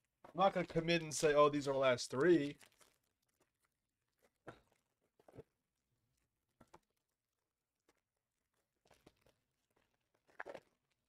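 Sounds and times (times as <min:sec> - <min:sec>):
foil wrappers crinkling: 0:01.8 - 0:05.3.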